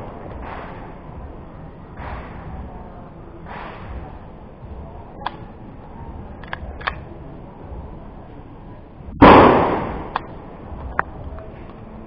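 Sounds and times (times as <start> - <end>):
pistol shot: 9.2 - 10.2.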